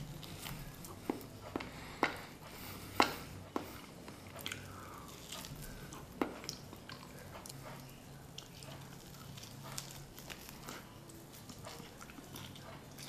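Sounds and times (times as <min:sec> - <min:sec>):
person chewing bread: 0:00.0 - 0:13.0.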